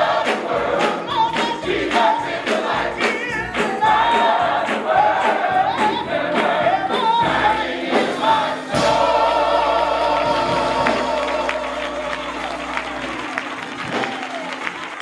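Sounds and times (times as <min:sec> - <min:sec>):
lead singer: 0:00.0 - 0:13.2
gospel choir singing: 0:00.0 - 0:14.5
hand clapping: 0:00.2 - 0:06.5, 0:10.8 - 0:15.0.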